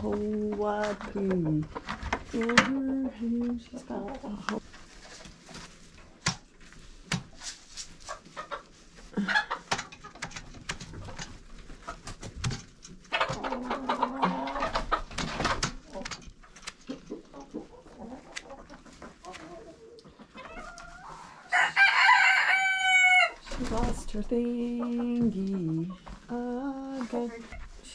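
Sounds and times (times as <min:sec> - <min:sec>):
chickens clucking: 0:00.0 - 0:27.9
rooster crowing: 0:21.5 - 0:23.4.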